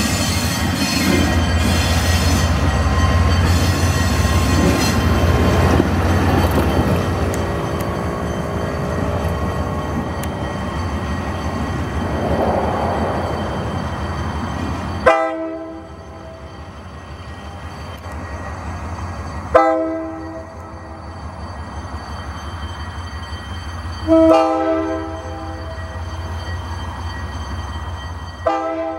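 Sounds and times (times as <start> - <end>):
locomotive horn blasts: 15.0 - 15.9, 19.5 - 20.4, 24.0 - 25.6, 28.4 - 28.9.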